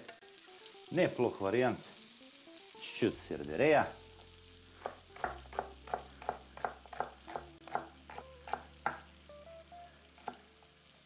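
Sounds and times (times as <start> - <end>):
knife chopping on wooden board: 4.8 - 9.1.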